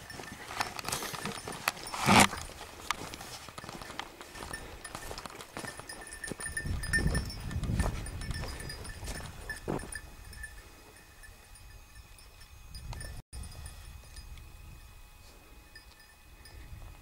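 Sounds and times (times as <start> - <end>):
small metal bell tinkling: 0.0 - 2.6, 3.6 - 15.0, 15.6 - 16.8
footsteps on stony ground: 0.0 - 11.0
wind rumble on microphone: 6.3 - 10.6, 16.2 - 17.0.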